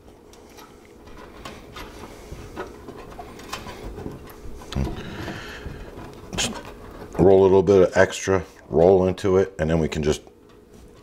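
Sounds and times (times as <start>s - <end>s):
wire mesh rustling and crinkling: 0.0s - 8.6s.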